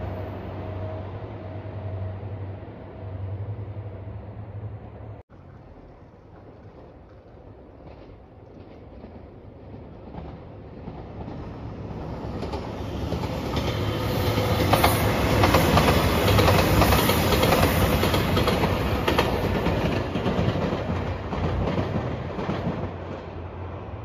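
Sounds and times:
diesel train rumble: 0.0s - 24.0s
wheels clicking over rails: 5.3s - 23.3s.

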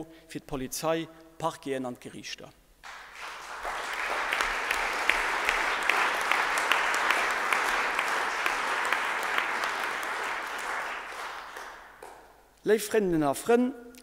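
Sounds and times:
audience applauding: 2.8s - 12.3s.

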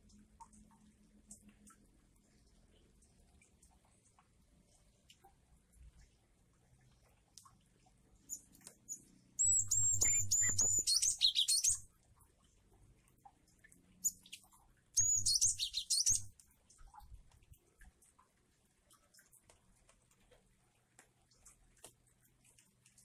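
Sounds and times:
bird singing twitter: 8.2s - 11.8s, 14.0s - 16.3s.

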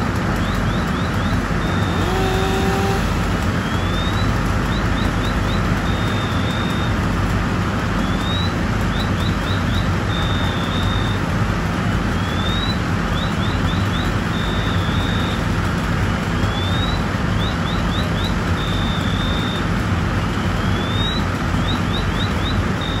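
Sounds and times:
fire engine pump rumbling: 0.0s - 23.0s
electronic alarm cycling: 0.4s - 7.0s, 8.0s - 11.3s, 16.5s - 19.7s.

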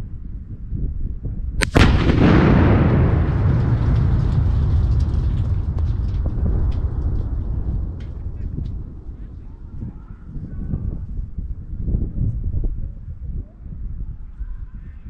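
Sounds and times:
explosive target cracking: 1.6s - 11.9s
low blast rumble: 1.6s - 12.8s.

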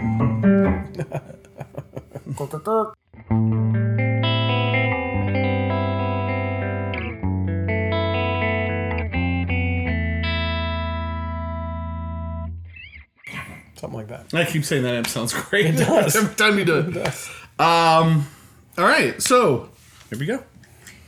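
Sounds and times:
clean electric guitar chords: 0.0s - 1.2s, 3.2s - 12.8s.

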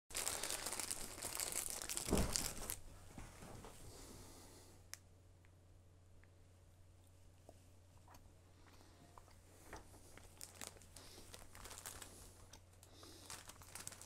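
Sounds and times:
plastic wrapper crinkling and tearing: 0.1s - 2.8s, 10.1s - 14.0s
dull thump: 2.1s - 2.5s.

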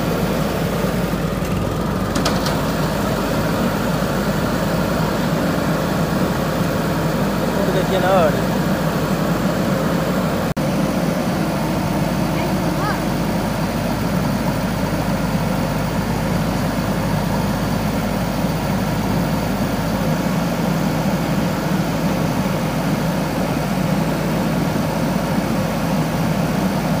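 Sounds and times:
diesel engine running at low revs: 0.0s - 27.0s.

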